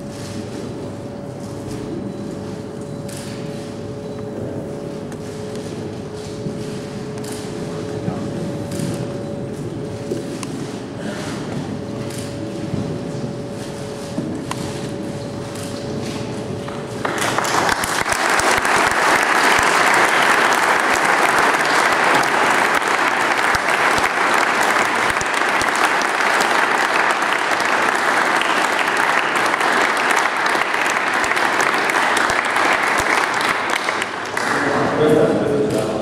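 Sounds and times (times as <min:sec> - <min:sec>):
audience applauding: 0:16.9 - 0:35.1.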